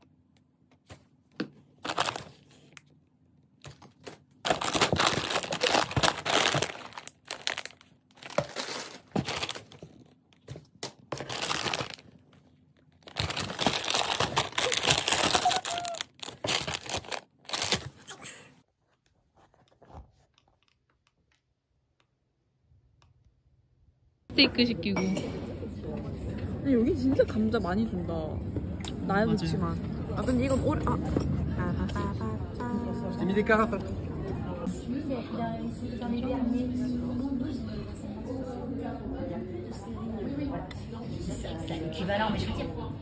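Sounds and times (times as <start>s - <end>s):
plastic packets crinkling: 1.8s - 2.6s, 4.0s - 10.5s, 11.1s - 18.1s.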